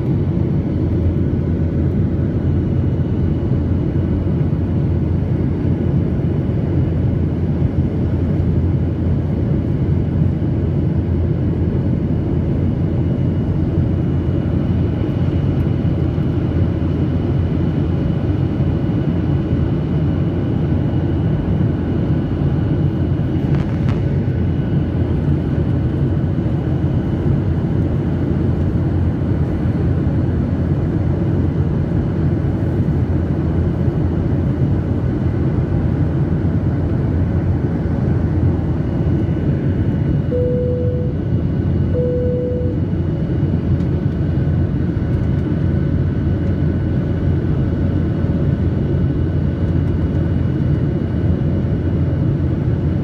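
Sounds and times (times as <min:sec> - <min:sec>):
low rumble of engines and airflow: 0:00.0 - 0:53.0
faint steady whine: 0:10.2 - 0:46.5.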